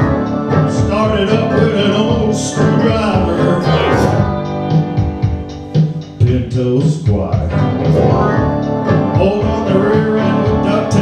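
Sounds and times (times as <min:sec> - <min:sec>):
electric keyboard: 0:00.0 - 0:06.2, 0:07.5 - 0:11.0
man singing: 0:00.5 - 0:04.2, 0:06.2 - 0:07.7, 0:09.0 - 0:11.0.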